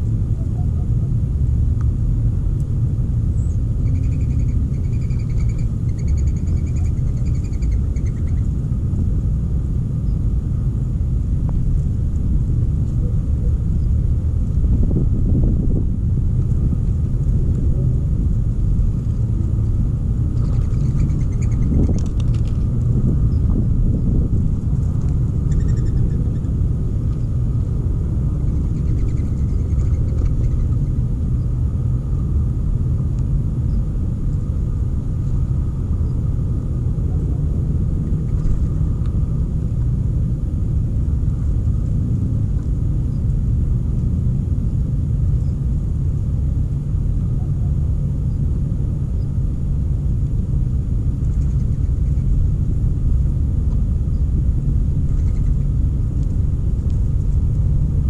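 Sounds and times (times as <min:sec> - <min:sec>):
loud low rumble: 0:00.0 - 0:58.0.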